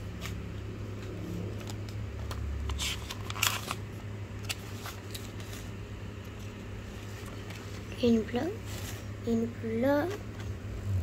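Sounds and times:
steady low hum: 0.0 - 11.0
paper rustling: 2.7 - 3.8, 4.4 - 7.9.

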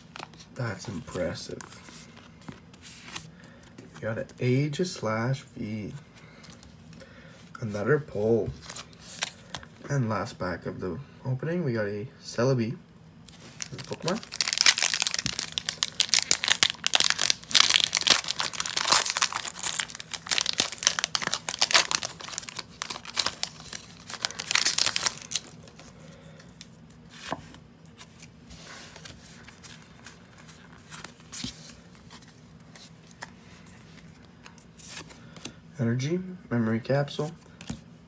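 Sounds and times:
cards rustling and clicking: 13.3 - 35.6
foil wrapper tearing and crinkling: 13.5 - 25.6.

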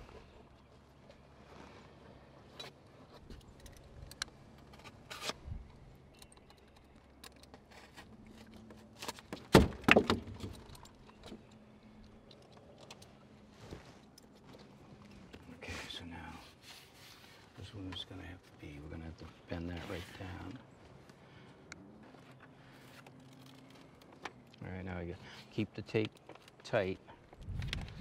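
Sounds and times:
tape clicks and rustles: 2.5 - 15.4, 22.2 - 24.7, 25.4 - 28.0.

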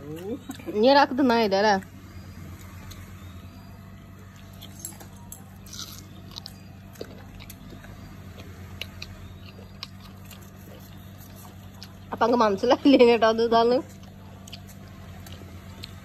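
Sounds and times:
dog chewing mango: 0.0 - 12.8, 13.6 - 16.0
teeth clicking on fruit: 4.4 - 12.4, 13.8 - 16.0.

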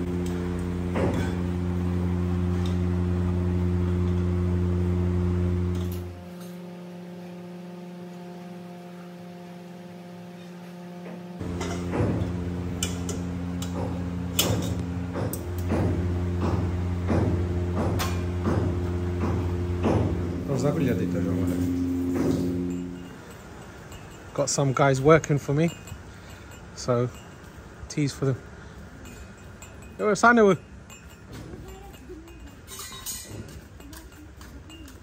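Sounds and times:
steady low hum: 0.0 - 35.0
metal pots and cups clinking: 11.4 - 15.8, 18.0 - 27.7, 28.9 - 35.0.

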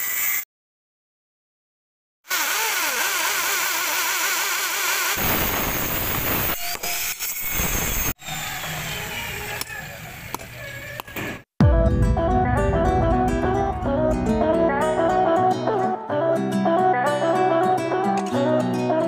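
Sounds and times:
electric drill boring into concrete: 2.3 - 8.2.

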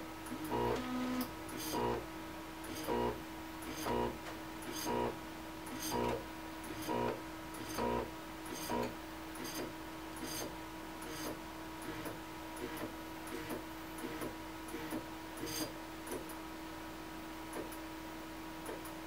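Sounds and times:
steady printer hum: 0.0 - 19.0
stepper motors moving with clicks: 2.6 - 16.4.

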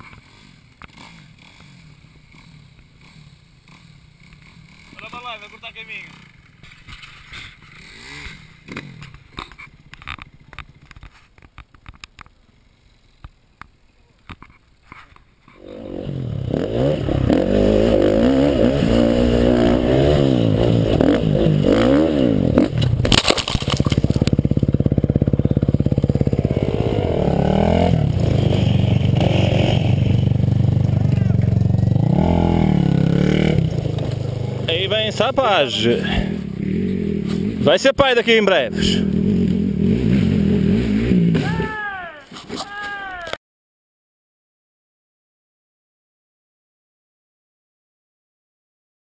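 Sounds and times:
dirt bike engine revving: 0.1 - 10.4, 15.6 - 41.8.

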